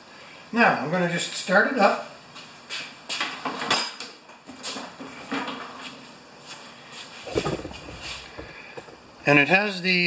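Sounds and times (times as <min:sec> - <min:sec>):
footsteps on concrete: 0:06.5 - 0:09.0.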